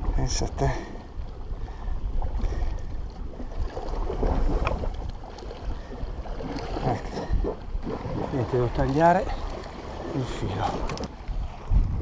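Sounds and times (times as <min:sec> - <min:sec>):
wind noise on microphone: 0:00.0 - 0:09.4, 0:10.2 - 0:12.0
sea water washing against rocks: 0:02.4 - 0:12.0.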